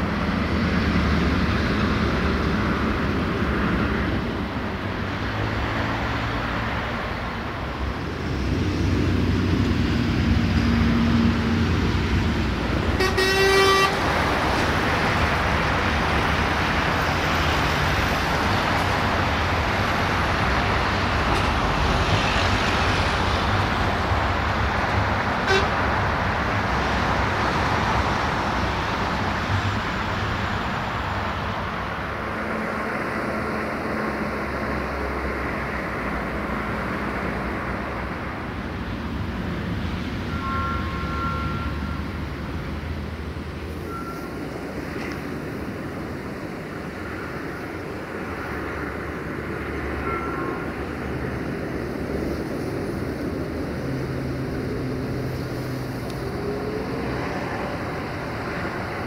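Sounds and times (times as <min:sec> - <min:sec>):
road vehicles rumbling past: 0:00.0 - 0:59.0.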